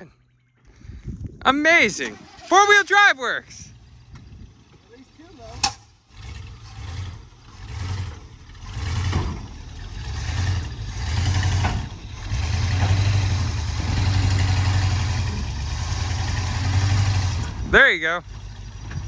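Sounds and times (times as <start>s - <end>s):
pickup truck engine under load: 1.0s - 19.0s
short clunks: 5.6s - 5.9s.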